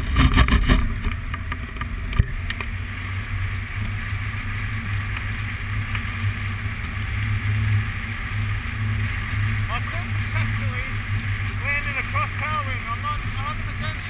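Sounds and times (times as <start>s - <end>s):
low pulsing rumble: 0.0s - 14.0s.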